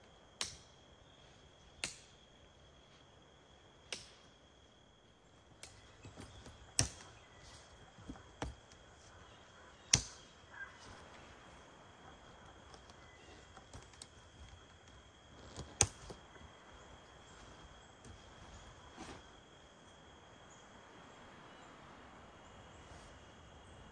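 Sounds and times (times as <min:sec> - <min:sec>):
sharp clicks and knocks: 0:05.6 - 0:07.2, 0:12.3 - 0:16.5.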